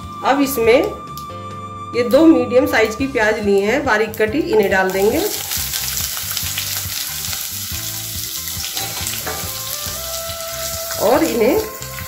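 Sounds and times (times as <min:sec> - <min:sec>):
onions sizzling in hot oil: 0:04.0 - 0:12.0.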